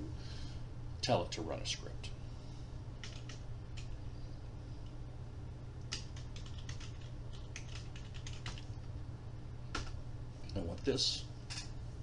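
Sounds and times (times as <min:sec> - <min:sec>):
low steady hum: 0:00.0 - 0:12.0
computer keyboard typing: 0:03.0 - 0:03.9, 0:05.9 - 0:08.7, 0:09.7 - 0:09.9.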